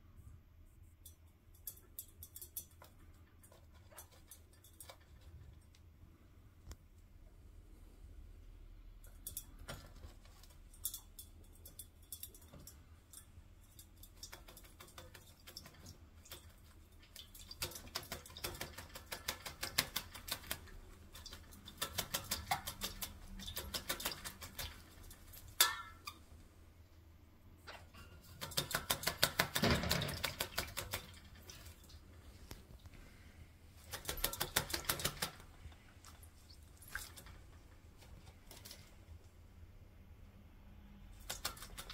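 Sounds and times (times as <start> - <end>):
bird splashing in water bowl: 9.0 - 26.2, 28.3 - 32.1, 33.8 - 39.0, 41.1 - 41.9.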